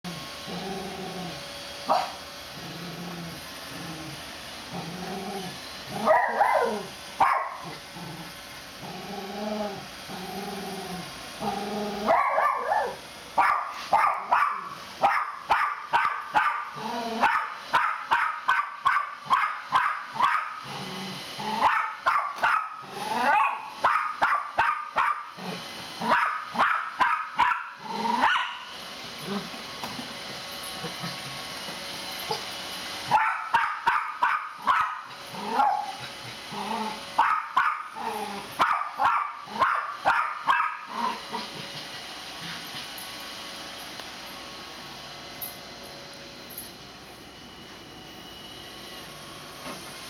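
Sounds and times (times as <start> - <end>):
dog growling low: 0.1 - 1.4, 2.5 - 6.1, 7.6 - 12.1, 16.8 - 17.2, 20.6 - 21.6, 22.8 - 23.4, 25.4 - 25.6, 27.8 - 28.2, 29.2 - 29.6, 35.3 - 37.0, 38.0 - 38.5, 40.9 - 41.8
dog barking: 1.9 - 2.2, 6.0 - 7.6, 12.1 - 20.6, 21.6 - 25.3, 26.0 - 28.7, 33.1 - 36.0, 37.2 - 37.9, 38.6 - 40.9.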